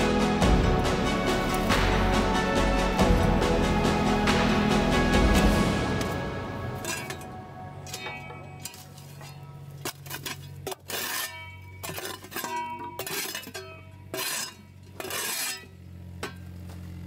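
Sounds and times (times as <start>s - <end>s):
spade scraping stony ground: 0.6s - 16.9s
spade clinking on stone: 6.8s - 16.4s.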